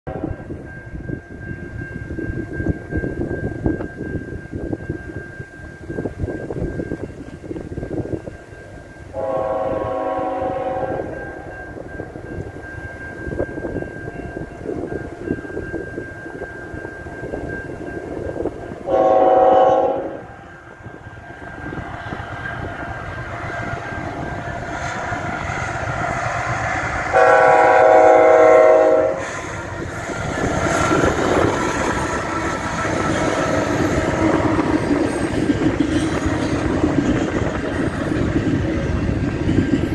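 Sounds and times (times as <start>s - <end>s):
locomotive air horn blasts: 0.1s - 0.4s, 9.1s - 11.5s, 18.8s - 20.3s, 27.1s - 29.6s
locomotive engine rumble: 5.8s - 39.9s.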